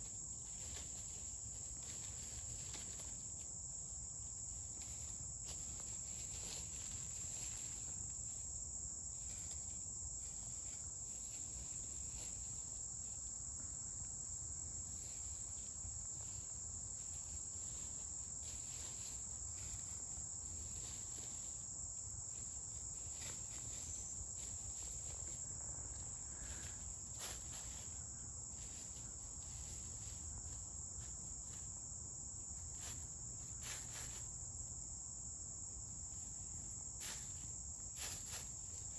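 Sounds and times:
insect chorus: 0.0 - 38.9
chickens rustling in dry leaves: 0.4 - 3.4, 4.7 - 8.4, 14.9 - 31.7, 32.7 - 34.4, 38.0 - 38.9.

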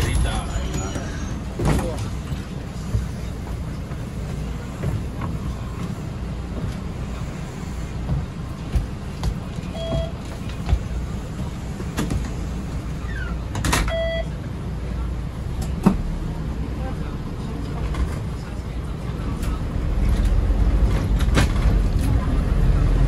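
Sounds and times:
minibus engine and road rumble: 0.0 - 23.0
short beeps: 9.7 - 10.2, 13.9 - 14.3.

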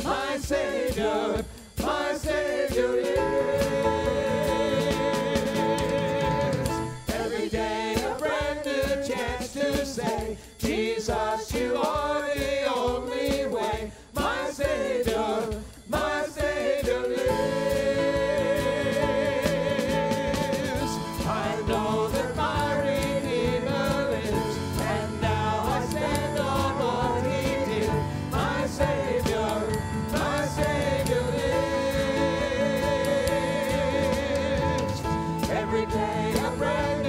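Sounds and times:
worship band and singers: 0.0 - 37.0.

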